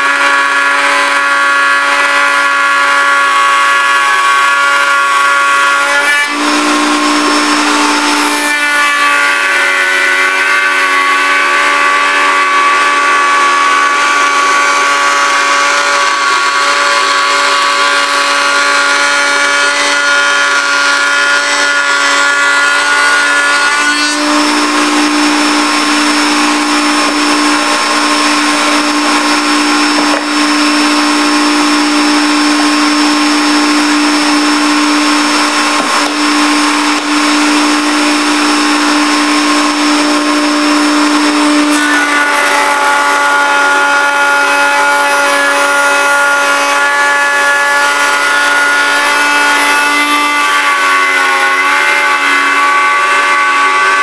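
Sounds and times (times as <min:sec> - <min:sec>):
router bit cutting wood: 0:00.0 - 0:54.0
router motor whine: 0:00.0 - 0:54.0.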